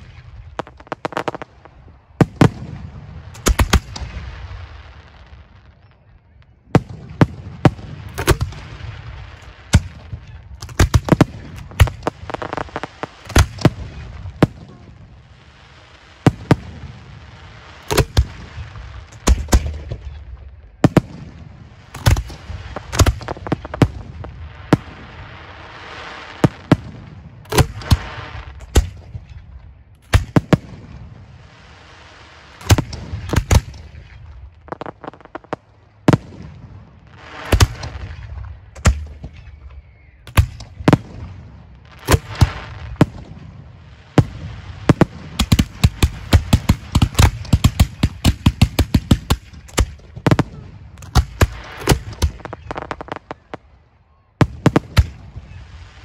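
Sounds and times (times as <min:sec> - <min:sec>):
shell bursts rumbling: 0:00.0 - 0:04.1, 0:09.7 - 0:14.8, 0:21.8 - 0:25.1
firework mortars launching: 0:00.0 - 0:05.2, 0:06.8 - 0:29.4, 0:30.0 - 0:53.8, 0:54.4 - 0:56.0.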